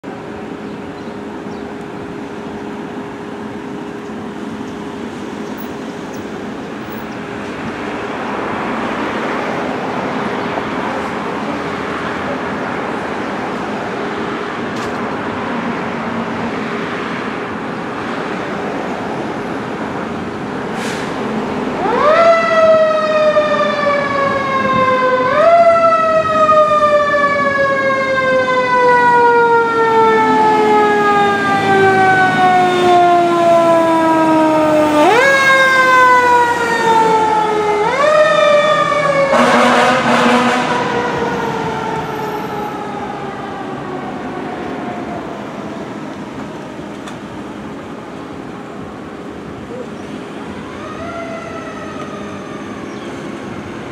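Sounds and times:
engine and traffic noise: 0.0 - 53.9
fire truck siren: 19.4 - 53.9.

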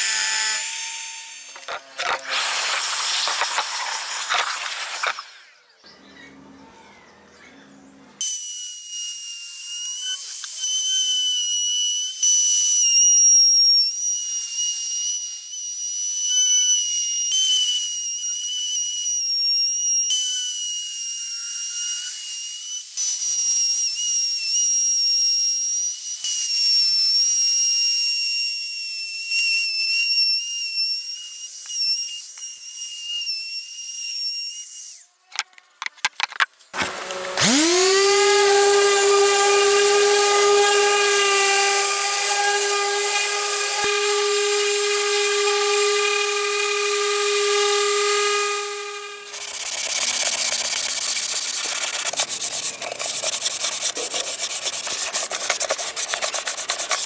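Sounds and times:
trim router whining: 0.0 - 5.6, 7.9 - 23.3, 36.8 - 57.0.

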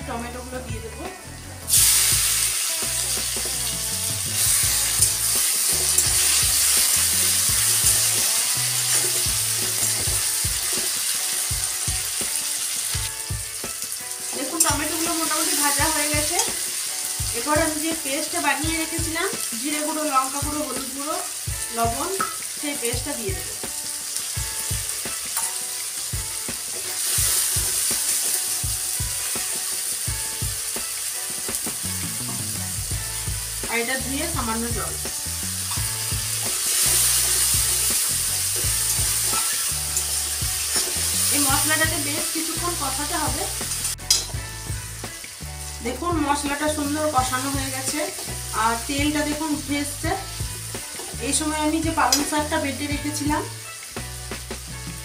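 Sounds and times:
tomatoes sizzling in hot oil: 0.0 - 55.0
metal spatula scraping pan: 39.0 - 40.2.

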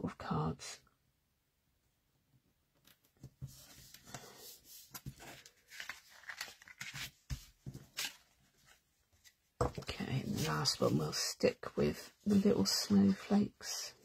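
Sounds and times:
paper and card rustling: 3.0 - 11.3.

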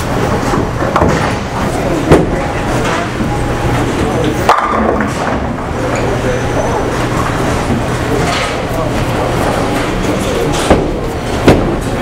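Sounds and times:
bowling balls and pins clattering: 0.0 - 12.0
background chatter: 0.2 - 12.0
sharp knocks: 10.6 - 11.9.

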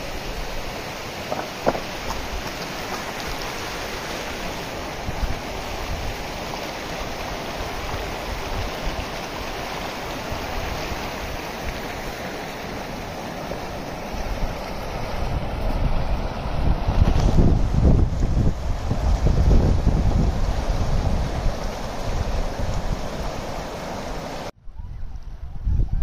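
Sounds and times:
stream rushing over rocks: 0.0 - 24.5
wind rumble on microphone: 14.1 - 23.6, 24.6 - 26.0.

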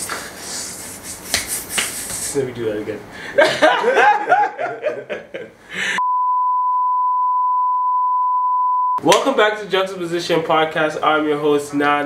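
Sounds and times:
laughter: 3.4 - 5.6
steady test-tone beep: 6.0 - 9.0.

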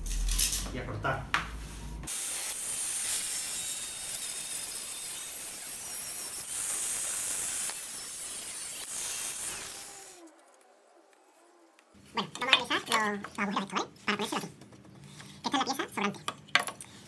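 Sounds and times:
angle grinder cutting metal: 2.1 - 10.3.

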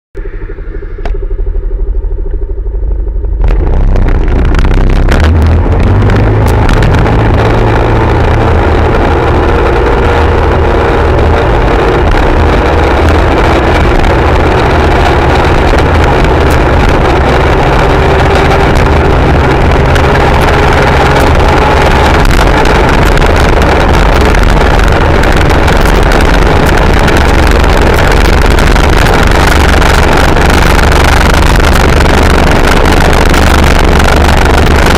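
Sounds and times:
scooter engine revving: 0.3 - 34.9
wind rushing on microphone: 3.4 - 34.9.

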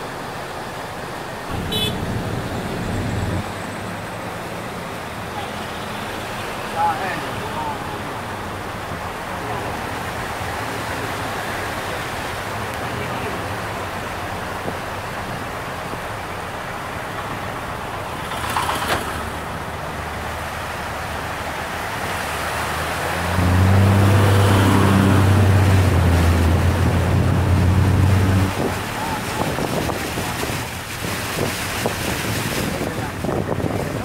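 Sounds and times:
floodwater rushing across road: 0.0 - 34.0.

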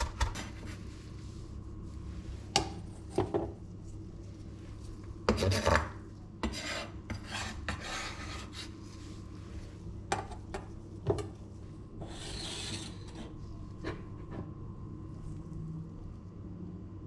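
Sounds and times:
knife scraping on wooden board: 6.4 - 8.7, 12.0 - 13.4.

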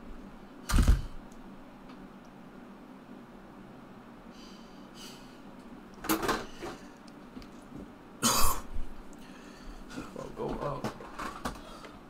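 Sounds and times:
man coughing: 8.2 - 8.7.

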